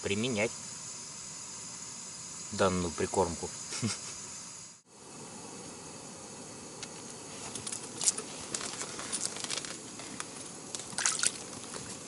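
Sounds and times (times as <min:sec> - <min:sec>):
steady low hiss: 0:00.0 - 0:12.0.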